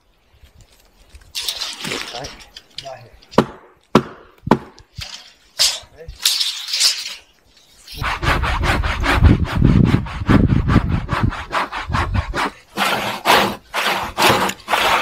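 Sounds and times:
hand saw cutting log: 7.9s - 15.0s.

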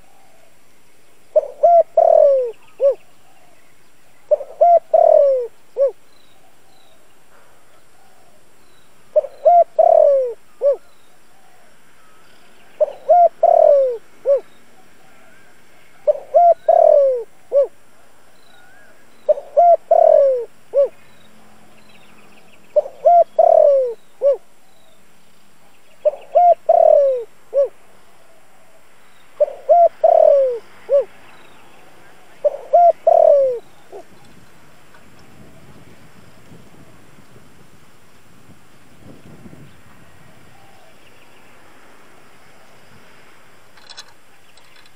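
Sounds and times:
dove cooing: 1.3s - 3.6s, 4.3s - 6.7s, 9.1s - 12.1s, 12.7s - 21.6s, 22.8s - 24.5s, 26.0s - 28.8s, 29.4s - 34.3s.

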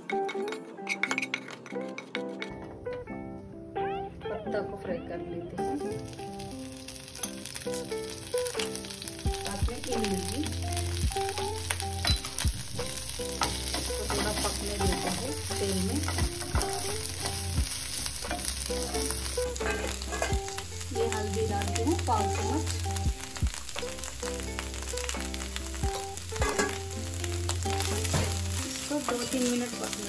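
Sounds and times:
leaves sizzling in hot oil: 5.5s - 30.0s
wooden spatula scraping pan: 18.2s - 21.3s.

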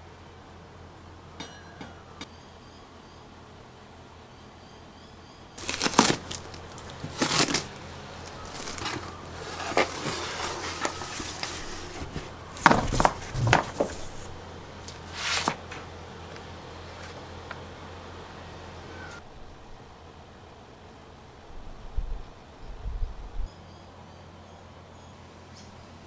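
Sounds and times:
cardboard box and paper being opened: 5.6s - 15.8s
low hum: 15.7s - 23.5s.

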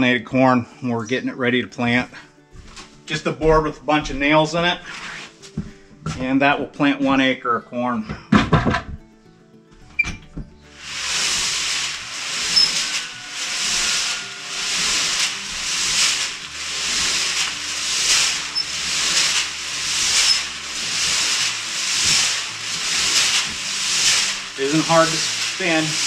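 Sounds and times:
seed tumbling in drum mixer: 10.7s - 26.0s.

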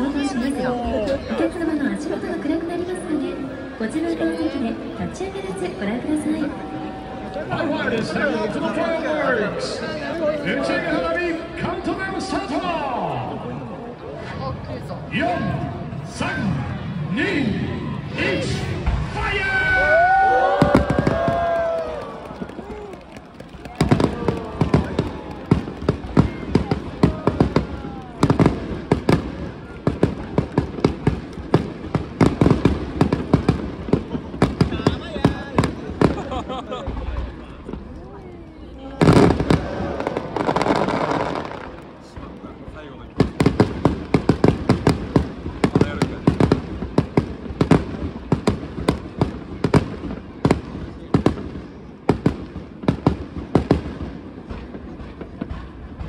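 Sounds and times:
fireworks bursting: 18.1s - 56.0s.

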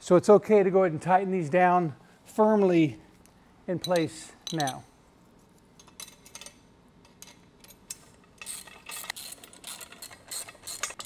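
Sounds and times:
wrench clicking on nuts: 7.2s - 11.0s.

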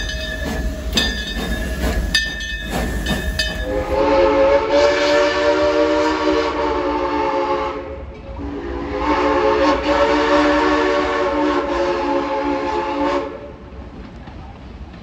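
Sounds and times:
steam locomotive chime whistle: 0.0s - 13.4s.

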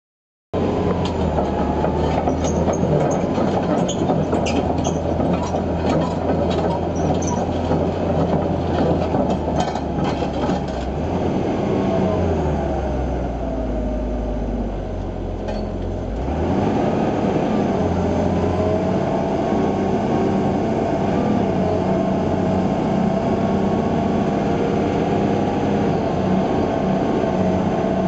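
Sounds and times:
diesel engine running: 0.6s - 28.0s
steel tracks clanking and squeaking: 0.9s - 10.9s, 15.4s - 16.0s.

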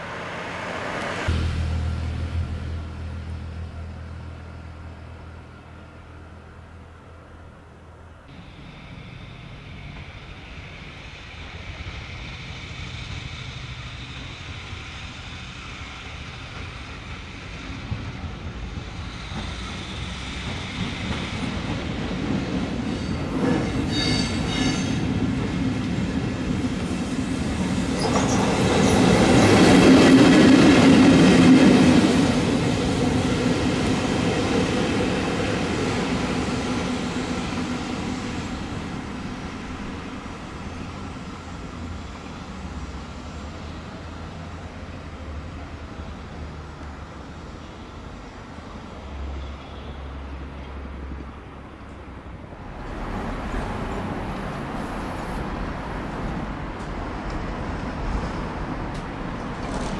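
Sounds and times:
electric locomotive passing: 0.0s - 59.9s
high wheel squeal: 22.9s - 25.1s.

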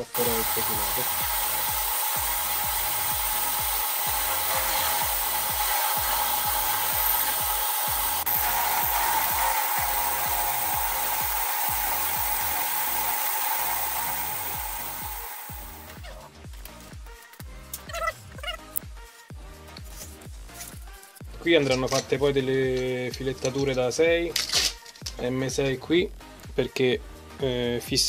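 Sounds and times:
milling machine drilling metal: 0.0s - 16.0s.

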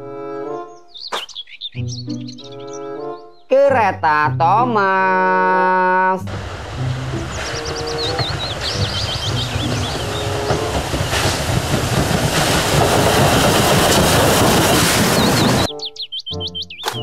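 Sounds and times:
steam train passing on rails: 6.3s - 15.7s.

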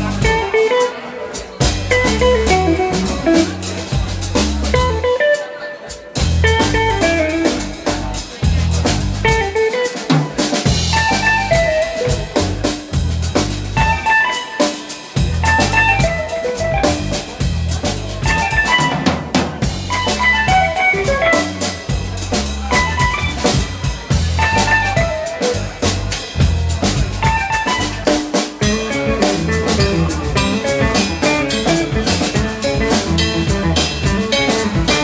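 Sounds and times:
electric bass: 0.0s - 0.6s, 1.6s - 5.2s, 6.2s - 9.6s, 10.7s - 14.3s, 15.2s - 35.0s
electric guitar lead: 0.0s - 8.2s, 9.2s - 13.0s, 13.7s - 35.0s
busy drum kit: 0.0s - 35.0s.

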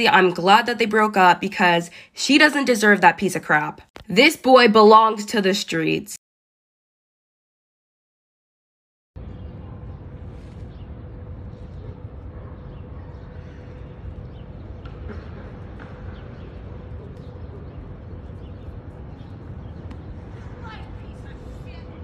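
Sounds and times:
steady low rumble: 9.2s - 22.0s.

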